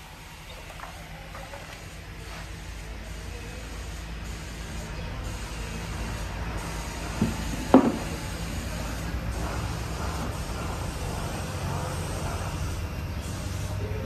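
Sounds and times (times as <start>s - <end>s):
wooden boards knocking: 7.7s - 8.0s.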